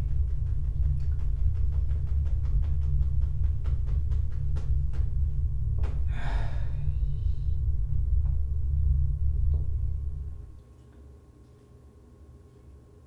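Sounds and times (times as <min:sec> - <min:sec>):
deep rumbling drone: 0:00.0 - 0:10.6
man gasping: 0:06.0 - 0:07.6.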